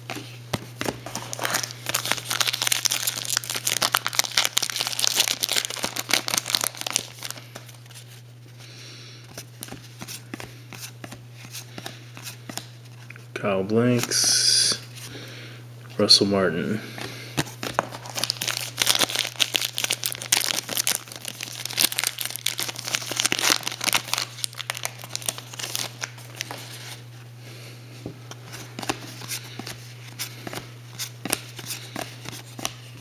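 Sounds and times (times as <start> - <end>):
foil wrapper crinkling and tearing: 1.1 - 8.0, 17.5 - 27.0.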